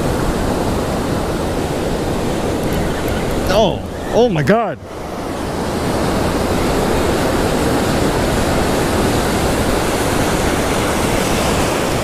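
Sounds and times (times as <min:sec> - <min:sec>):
ocean surf rushing: 0:00.0 - 0:12.0.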